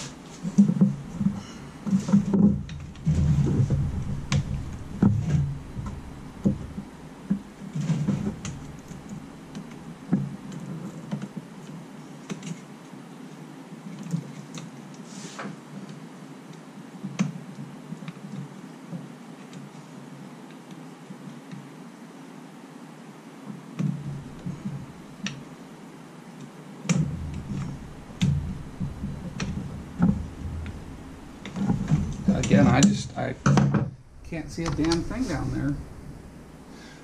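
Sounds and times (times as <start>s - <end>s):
dull thumps: 0.0s - 10.4s, 23.8s - 25.4s, 26.9s - 37.0s
clicks and rustles of connectors: 7.4s - 12.7s.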